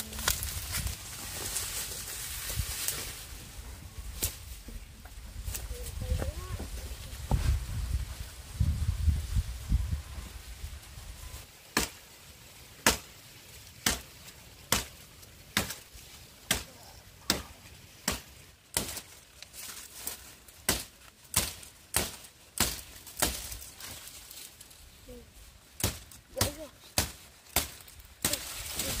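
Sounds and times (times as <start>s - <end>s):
blade chopping sugarcane: 11.7s - 12.0s, 12.8s - 13.1s, 13.8s - 14.1s, 14.7s - 19.1s, 20.6s - 23.6s, 25.8s - 29.0s.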